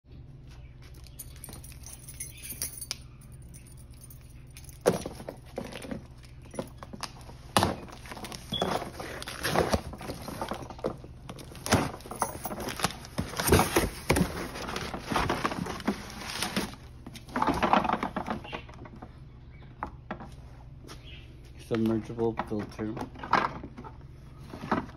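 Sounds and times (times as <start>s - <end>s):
plastic packaging rustling: 4.8s - 18.6s.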